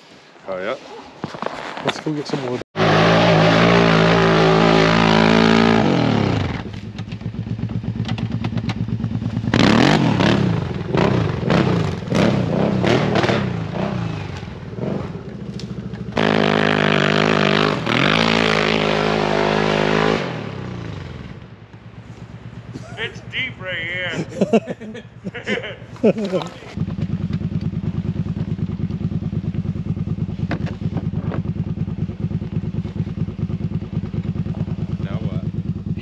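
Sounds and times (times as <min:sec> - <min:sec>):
snowmobile engine revving: 0:02.8 - 0:06.8, 0:09.5 - 0:15.3, 0:16.2 - 0:21.4, 0:22.1 - 0:26.8.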